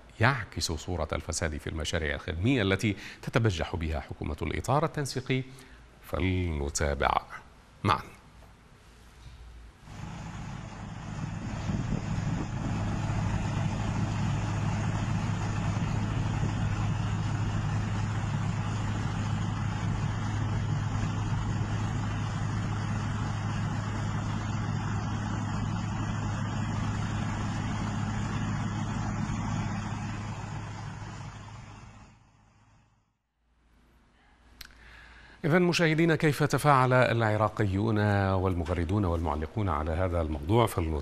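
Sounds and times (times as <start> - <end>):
heavy machinery engine droning: 9.8 - 33.0.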